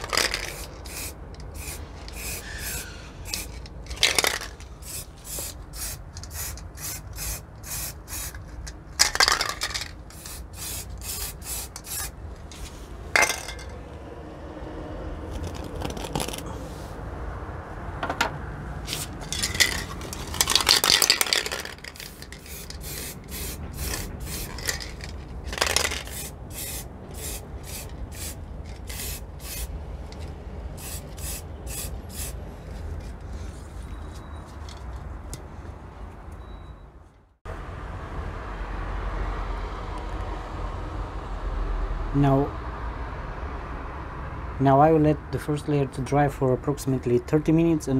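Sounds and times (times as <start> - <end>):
spray paint hissing: 0.0 - 8.5, 9.7 - 12.2, 18.9 - 32.4
spray can mixing ball rattling: 0.0 - 12.1, 18.9 - 32.4.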